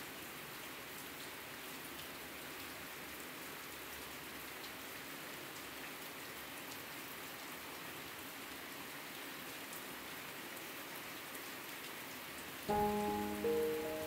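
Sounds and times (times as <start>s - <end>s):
steady rain falling: 0.0s - 14.0s
music: 12.7s - 14.0s.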